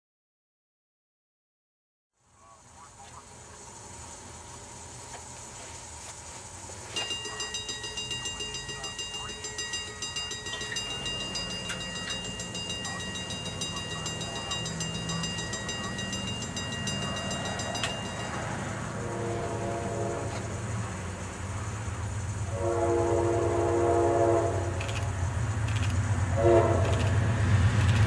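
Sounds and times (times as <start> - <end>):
low rumble of train: 2.2 - 28.0
crossing bell ringing: 6.9 - 20.5.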